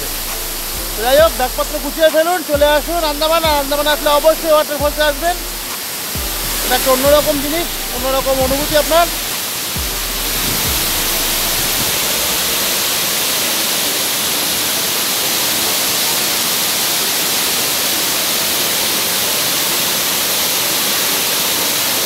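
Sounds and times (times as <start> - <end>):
waterfall cascading over rocks: 0.0 - 22.0.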